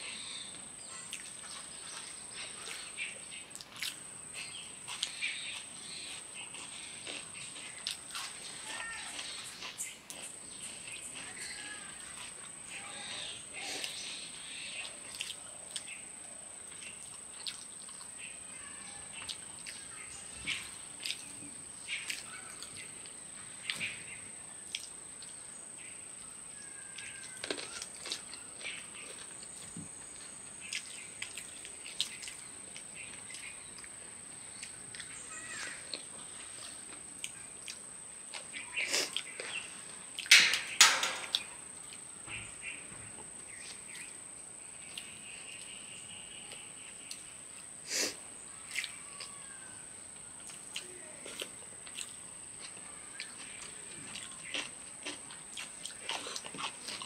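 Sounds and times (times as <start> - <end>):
crickets droning: 0.0 - 57.0
chewing and lip-smacking: 3.5 - 11.3, 14.8 - 15.9, 16.7 - 18.2, 21.0 - 23.8, 24.6 - 25.4, 27.0 - 29.8, 30.6 - 35.2, 35.8 - 40.6, 50.4 - 57.0.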